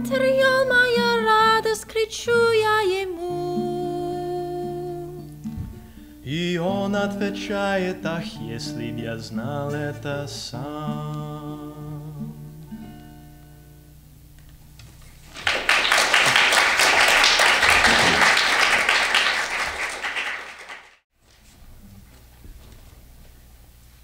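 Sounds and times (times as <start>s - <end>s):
person singing: 0.0s - 5.3s, 6.2s - 12.7s
acoustic guitar chords: 0.0s - 14.8s
audience applause: 15.2s - 21.0s.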